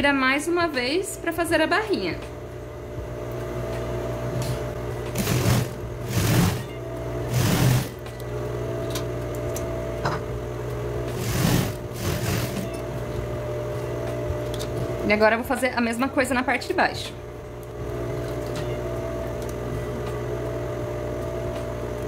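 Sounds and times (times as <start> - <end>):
sewing machine stitching: 5.1 - 8.1, 11.1 - 12.8.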